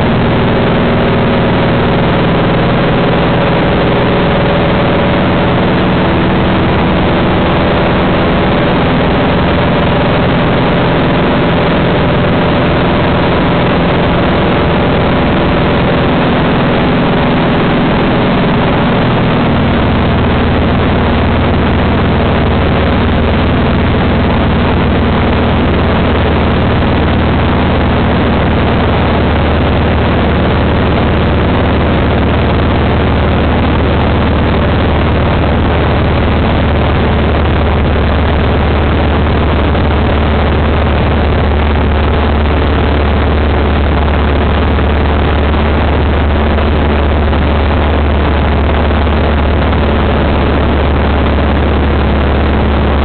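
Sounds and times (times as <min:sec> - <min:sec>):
aircraft engine and propeller droning: 0:00.0 - 0:53.0.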